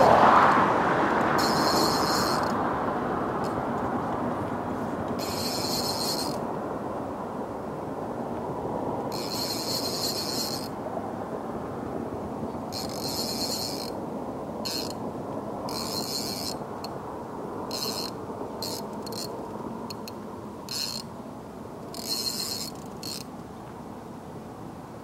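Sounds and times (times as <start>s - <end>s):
fishing reel ratcheting: 1.4s - 2.6s, 5.2s - 6.4s, 9.1s - 10.8s, 12.7s - 14.0s, 14.6s - 15.0s, 15.7s - 17.0s, 17.7s - 19.3s, 19.9s - 21.1s, 21.9s - 23.3s.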